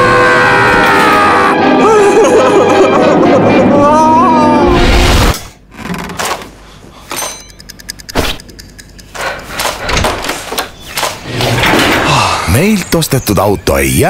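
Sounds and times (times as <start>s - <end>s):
door rattle: 9.5s - 12.2s
door clicking and knocking: 9.6s - 12.1s.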